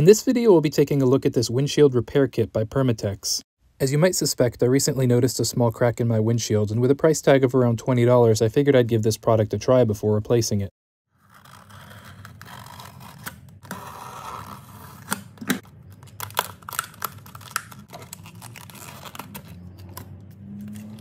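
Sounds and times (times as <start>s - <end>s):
plastic packaging crackling: 15.4s - 21.0s.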